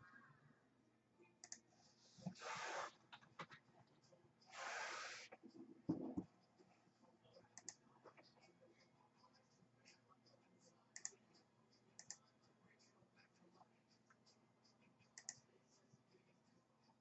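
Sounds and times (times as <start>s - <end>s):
computer mouse clicks: 1.4s - 3.6s, 7.6s - 7.8s, 11.0s - 11.2s, 12.0s - 12.2s, 15.2s - 15.4s.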